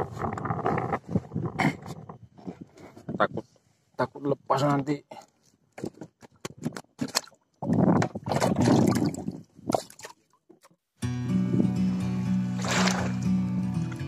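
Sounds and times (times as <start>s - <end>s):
water splashing: 7.0s - 10.7s, 12.5s - 13.3s
background music: 11.0s - 14.0s.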